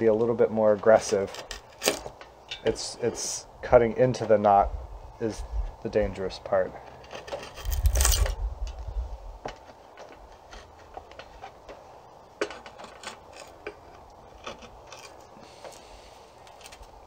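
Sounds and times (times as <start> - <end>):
draw knife scraping wood: 6.9 - 8.3.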